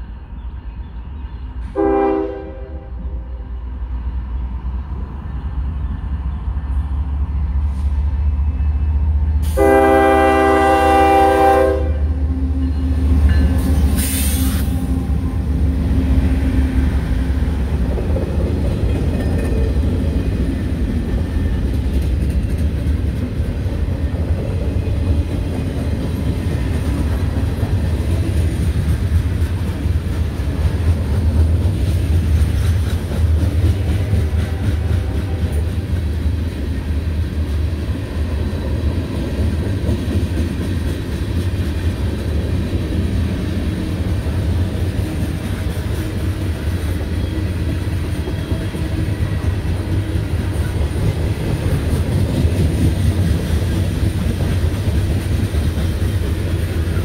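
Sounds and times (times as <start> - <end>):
train cars rumbling past: 0.0 - 57.0
wheels clacking over rail joints: 14.9 - 57.0.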